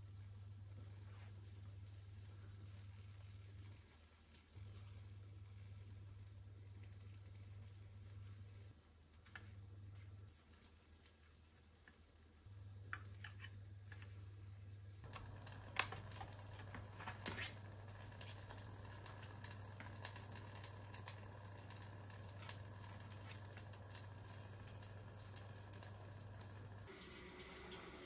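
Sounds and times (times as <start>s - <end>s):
steady low hum: 12.5s - 28.0s.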